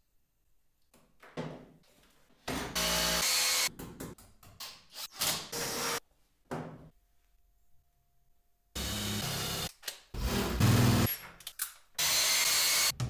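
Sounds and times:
cordless drill drilling into wall: 2.8s - 3.7s, 8.8s - 11.1s, 12.0s - 12.9s.

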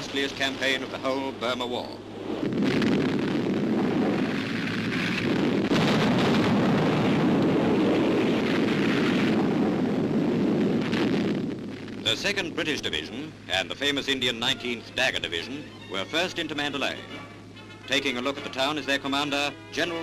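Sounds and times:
rumbling roar of explosions: 0.0s - 13.8s.

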